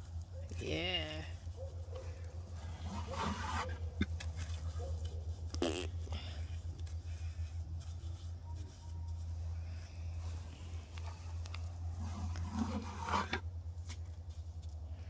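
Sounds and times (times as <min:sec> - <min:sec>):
steady low hum: 0:00.0 - 0:15.0
wet mortar squishing and scraping: 0:00.0 - 0:15.0.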